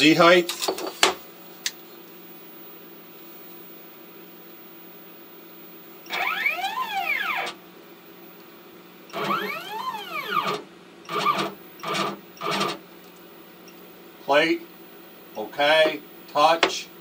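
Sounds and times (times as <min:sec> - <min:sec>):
stepper motors whining: 0:06.1 - 0:07.6, 0:09.1 - 0:12.8.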